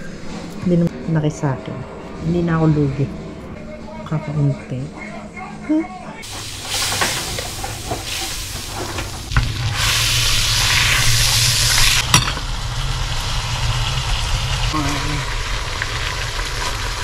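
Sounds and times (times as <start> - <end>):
butter sizzling in frying pan: 6.2 - 17.0.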